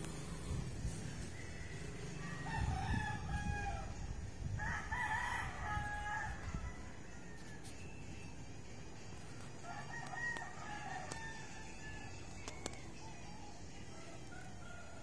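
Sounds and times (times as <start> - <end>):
rooster crowing: 1.3 - 7.8, 9.6 - 12.3.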